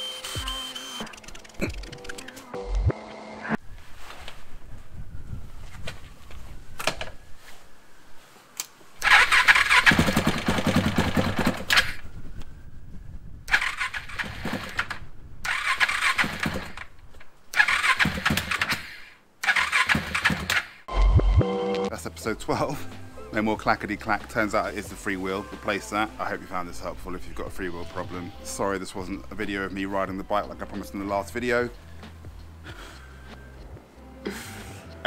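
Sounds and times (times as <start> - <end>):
engine cranked by electric starter: 9.0 - 12.0, 13.5 - 16.9, 17.5 - 20.8.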